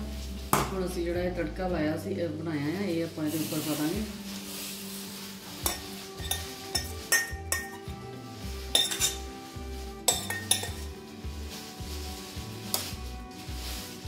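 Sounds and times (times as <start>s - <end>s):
background music with beat: 4.3s - 14.0s
spoon clinking against steel pan: 5.7s - 7.9s, 8.8s - 9.2s, 10.1s - 10.9s.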